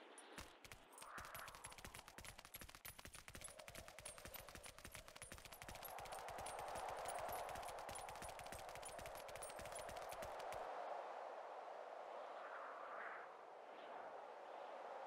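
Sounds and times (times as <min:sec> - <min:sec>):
rapid irregular clicking and crackling: 0:00.0 - 0:10.6.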